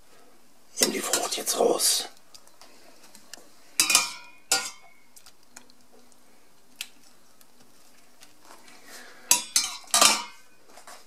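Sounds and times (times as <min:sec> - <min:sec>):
metal spoon clinking on a pot: 0:03.8 - 0:05.0, 0:09.3 - 0:10.5.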